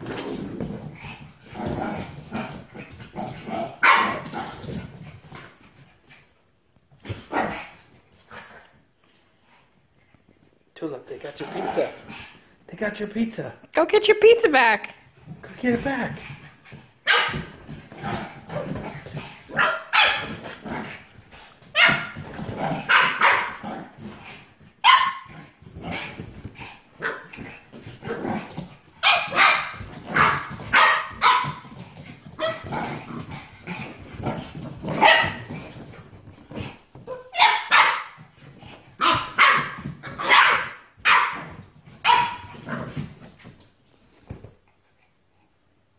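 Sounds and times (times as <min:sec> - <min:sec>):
small dogs barking and yipping: 0:03.8 - 0:04.3, 0:17.0 - 0:17.7, 0:19.5 - 0:20.4, 0:21.7 - 0:22.2, 0:22.8 - 0:23.6, 0:24.8 - 0:25.4, 0:29.0 - 0:32.8, 0:34.9 - 0:35.5, 0:37.0 - 0:38.3, 0:39.0 - 0:42.6.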